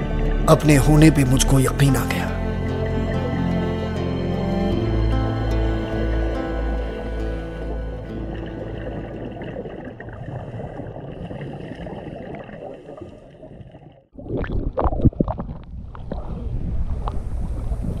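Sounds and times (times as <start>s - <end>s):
underwater rumble and gurgling: 5.6s - 18.0s
water slapping and splashing: 7.0s - 18.0s
wind on microphone: 14.2s - 18.0s.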